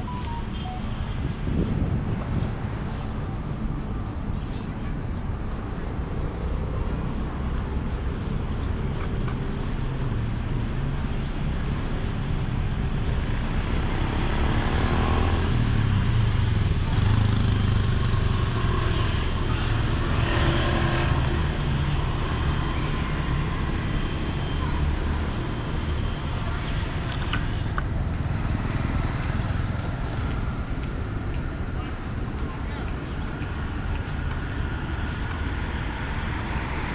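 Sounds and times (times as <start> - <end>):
cars and motorbikes passing: 0.0 - 36.9.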